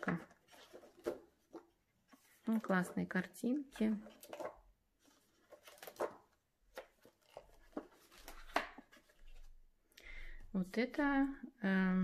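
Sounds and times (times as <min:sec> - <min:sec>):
paper pages rustling: 0:00.1 - 0:09.6.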